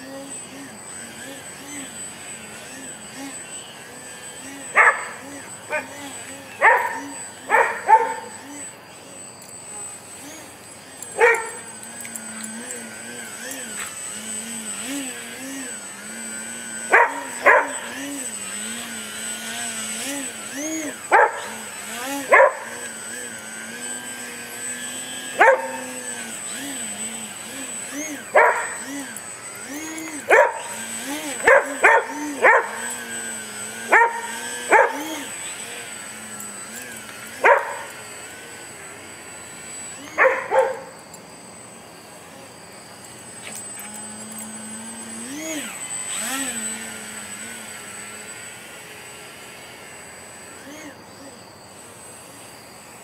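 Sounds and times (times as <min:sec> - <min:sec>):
electric motor and propeller whine: 0:00.0 - 0:53.0
dog barking: 0:04.8 - 0:05.9, 0:06.6 - 0:08.3, 0:11.2 - 0:11.6, 0:16.9 - 0:17.8, 0:21.1 - 0:21.5, 0:22.3 - 0:22.7, 0:25.4 - 0:25.8, 0:28.3 - 0:28.8, 0:30.3 - 0:30.7, 0:31.4 - 0:32.8, 0:33.9 - 0:35.0, 0:37.4 - 0:37.9, 0:40.2 - 0:40.9.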